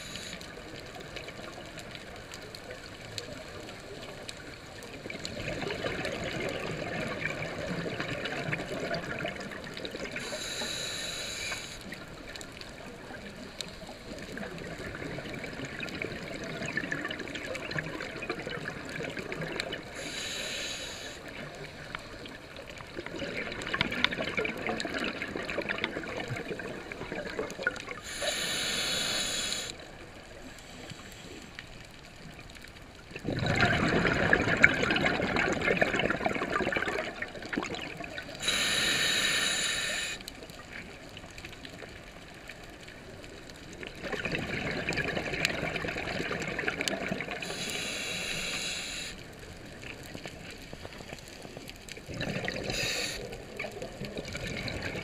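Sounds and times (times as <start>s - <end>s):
regulator inhalation hiss: 0.0s - 0.6s, 10.2s - 12.0s, 19.9s - 21.4s, 28.0s - 29.8s, 38.4s - 40.3s, 47.4s - 49.3s, 52.6s - 53.4s
bubbling exhalation underwater: 33.1s - 38.3s, 43.9s - 47.5s, 52.0s - 52.9s, 53.6s - 55.0s.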